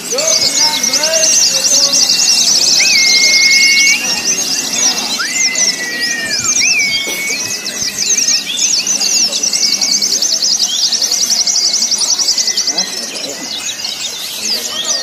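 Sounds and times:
low background murmur: 0:00.0 - 0:15.0
many songbirds chirping: 0:00.0 - 0:15.0
bird fast even trill: 0:00.1 - 0:13.0.

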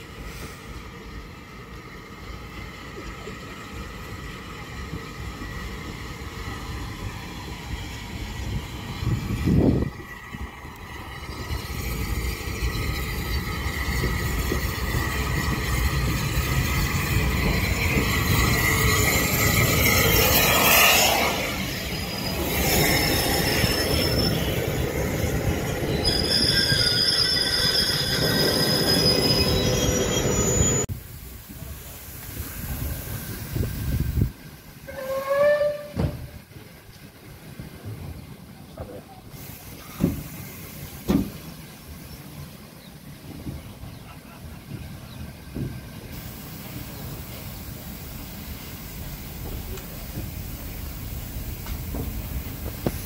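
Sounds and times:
rush of steam and rail noise: 0:00.0 - 0:53.0
steam locomotive passing: 0:00.0 - 0:53.0
squealing train brakes: 0:04.8 - 0:30.9, 0:32.4 - 0:36.4, 0:39.3 - 0:42.5.

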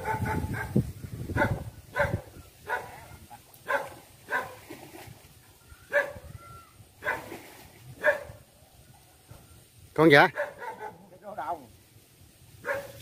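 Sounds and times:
dog barking: 0:00.0 - 0:00.8, 0:01.4 - 0:04.6, 0:05.9 - 0:06.3, 0:07.0 - 0:07.4, 0:08.0 - 0:08.4, 0:10.3 - 0:11.1, 0:12.6 - 0:13.0.

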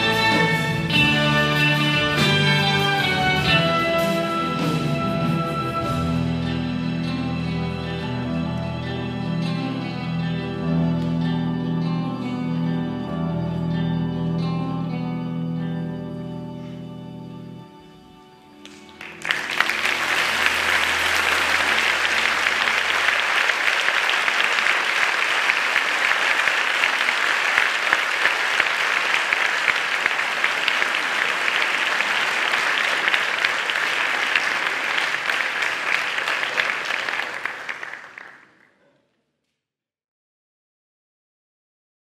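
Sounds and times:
audience applauding: 0:18.6 - 0:38.9.

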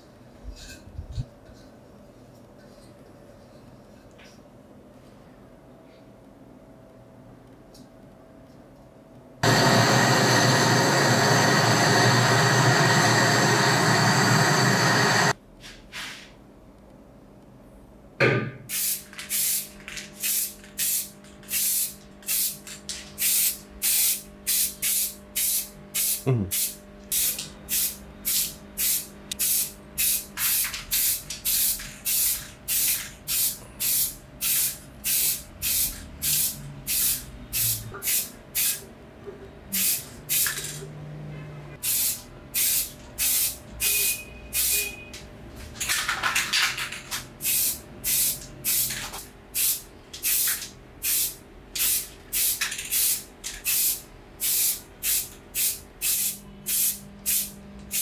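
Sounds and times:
spray-paint can hissing: 0:18.7 - 0:38.8, 0:39.8 - 0:40.7, 0:41.8 - 0:44.9, 0:47.4 - 0:49.0, 0:49.6 - 0:58.0.

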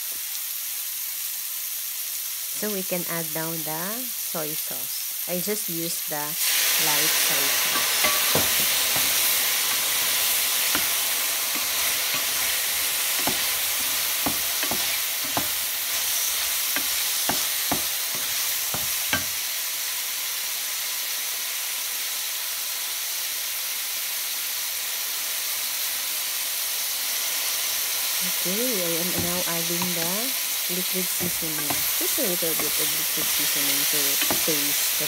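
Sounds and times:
mushrooms sizzling in a frying pan: 0:00.0 - 0:35.0
wooden spoon scraping a pan: 0:07.4 - 0:19.4, 0:31.1 - 0:35.0.

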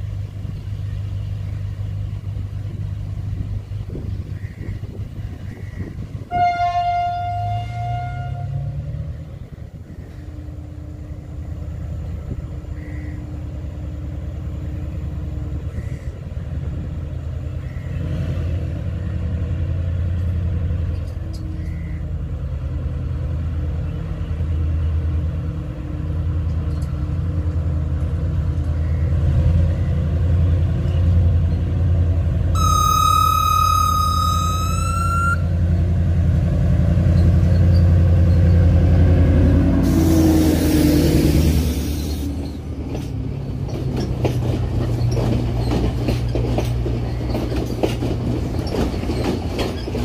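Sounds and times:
train diesel engine drone: 0:00.0 - 0:50.0
train horn blast: 0:06.2 - 0:09.0, 0:32.5 - 0:35.7, 0:39.5 - 0:41.6.

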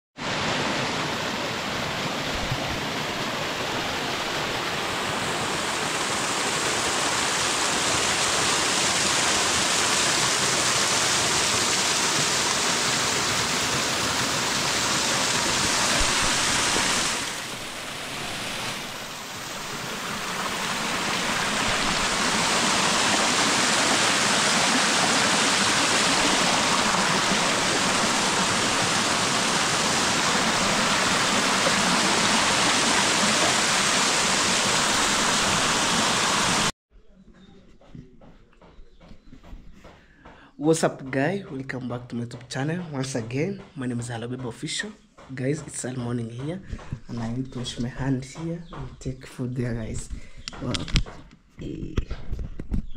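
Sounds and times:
waterfall and stream rushing: 0:00.2 - 0:36.7.

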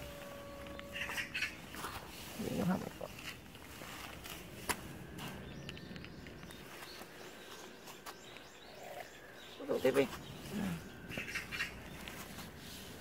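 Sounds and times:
faint bird chirps: 0:00.0 - 0:03.0
rustling over leaf litter: 0:00.0 - 0:05.9, 0:09.6 - 0:13.0.

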